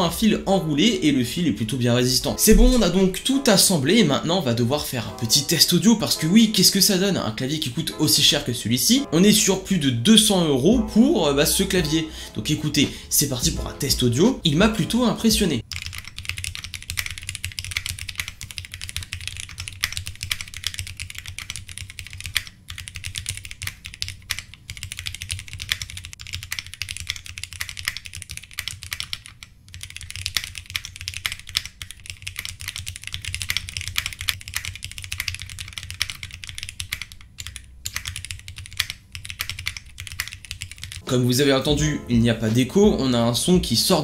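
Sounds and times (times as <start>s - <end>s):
mechanical keyboard typing: 2.4s - 3.2s, 15.2s - 41.0s.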